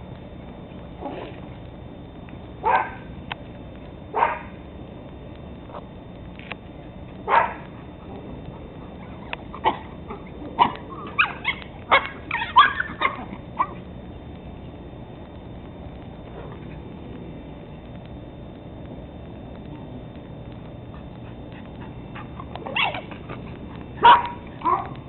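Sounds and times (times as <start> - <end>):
dogs barking and yipping: 2.6 - 3.0, 4.1 - 4.6, 7.2 - 13.9, 20.8 - 25.0.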